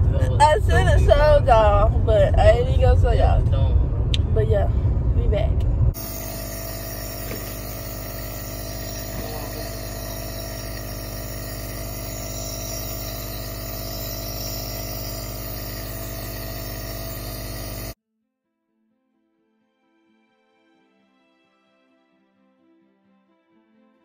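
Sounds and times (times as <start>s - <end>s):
air compressor hum and hiss: 6.0s - 18.0s.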